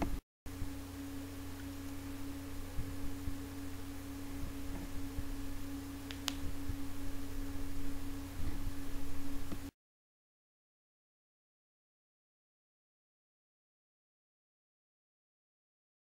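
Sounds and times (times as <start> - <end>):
faint low rumble: 0.0 - 9.7
steady single-pitched hum: 0.0 - 9.8.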